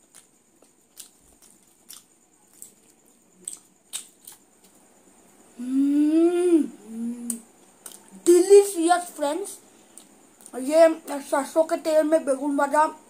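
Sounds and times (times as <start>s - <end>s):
child chewing food: 0.0s - 5.0s, 5.6s - 8.4s, 9.8s - 10.6s
child humming mmm: 5.5s - 7.5s.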